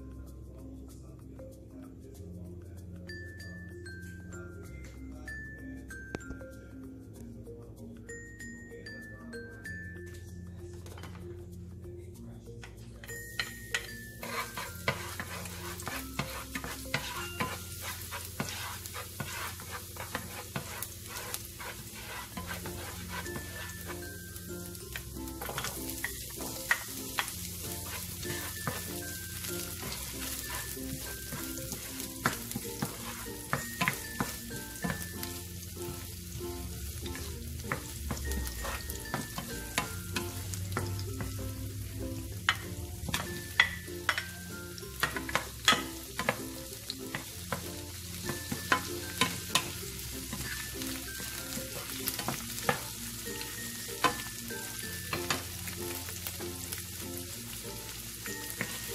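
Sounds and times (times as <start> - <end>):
vegetables sizzling in oil: 13.4 - 58.9.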